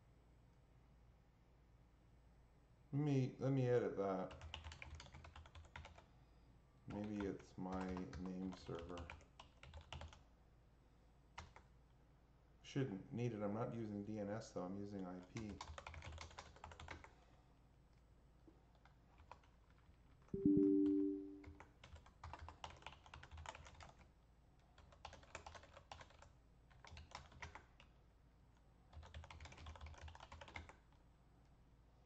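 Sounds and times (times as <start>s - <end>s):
computer keyboard typing: 4.3s - 6.1s, 6.9s - 10.2s, 11.4s - 11.7s, 15.2s - 17.1s, 18.7s - 24.1s, 24.8s - 27.9s, 28.9s - 31.0s
two-tone beep: 20.4s - 21.4s.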